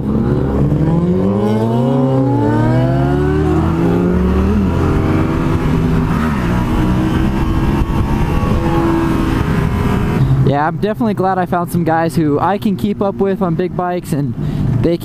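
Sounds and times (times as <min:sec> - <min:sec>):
motorcycle engine accelerating: 0:00.0 - 0:10.5
wind rushing: 0:00.0 - 0:10.5.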